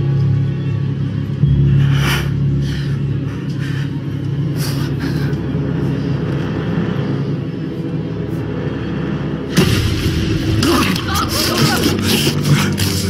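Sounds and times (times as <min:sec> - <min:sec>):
dramatic film score drone: 0:00.0 - 0:13.0
loud orchestral hit: 0:09.5 - 0:12.3.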